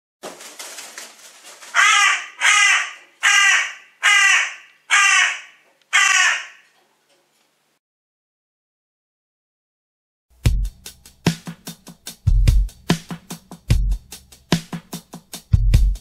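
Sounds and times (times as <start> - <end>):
soft rustling: 0.2 - 1.8
crow cawing: 1.7 - 6.8.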